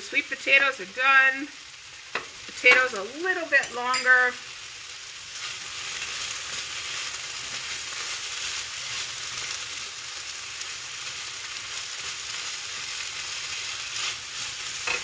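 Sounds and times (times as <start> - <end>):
food sizzling in a pan: 0.0 - 15.0
spatula scraping a pan: 13.6 - 15.0.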